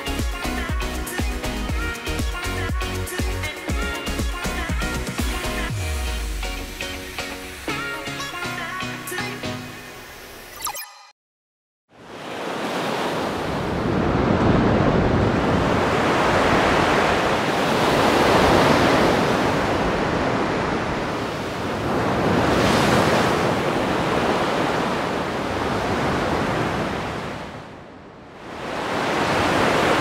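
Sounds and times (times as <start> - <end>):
ocean waves rushing in: 3.5 - 10.8, 12.0 - 30.0.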